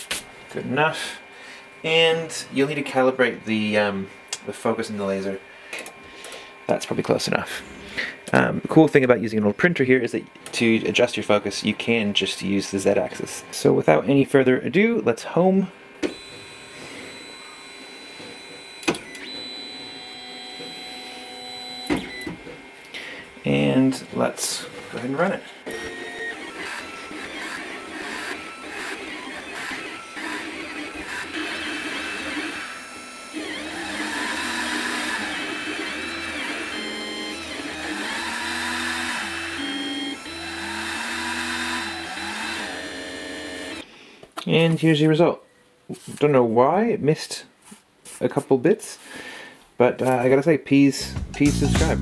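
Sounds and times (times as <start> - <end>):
stepper motors whining: 16.0 - 22.9, 24.9 - 43.8.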